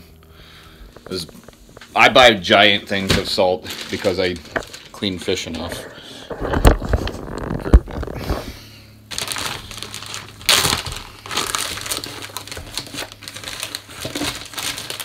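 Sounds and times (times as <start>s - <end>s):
salt package crinkling: 3.0s - 5.4s, 9.1s - 15.0s.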